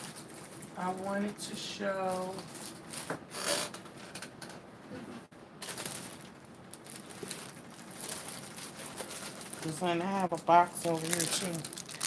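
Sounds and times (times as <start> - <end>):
rustling of packaging: 0.0 - 3.2, 5.6 - 12.0.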